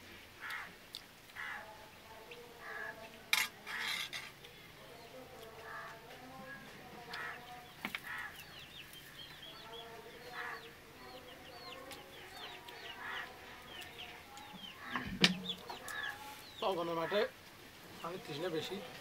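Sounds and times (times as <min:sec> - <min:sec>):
chickens clucking: 0:02.3 - 0:19.0.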